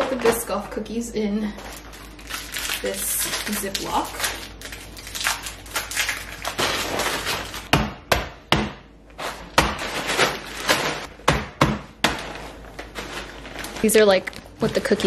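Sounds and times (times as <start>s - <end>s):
plastic bag crinkling: 1.4s - 7.7s, 9.1s - 11.1s, 12.2s - 15.0s.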